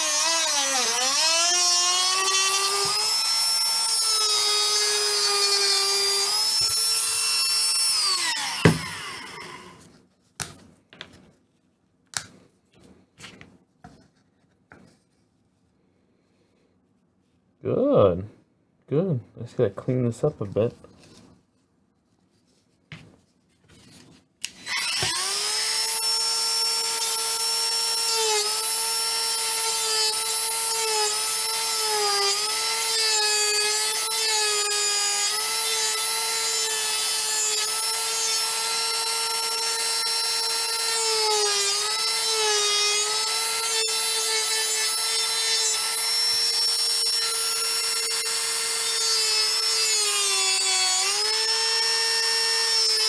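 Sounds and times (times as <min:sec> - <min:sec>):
rotary tool whining: 0:00.0 - 0:09.9, 0:23.8 - 0:53.0.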